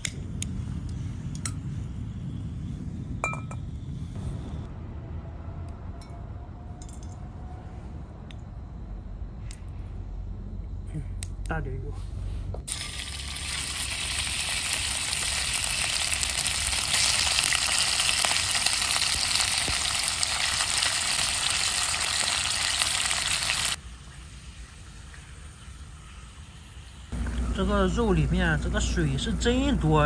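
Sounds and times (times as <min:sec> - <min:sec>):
meat sizzling in hot oil: 0:12.7 - 0:23.8.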